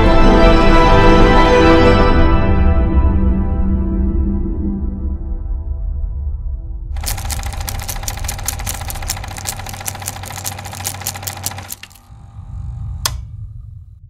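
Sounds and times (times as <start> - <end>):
sharp click: 7.0 - 12.1, 13.0 - 13.3
film projector clattering: 7.0 - 12.2
low hum: 7.0 - 14.0.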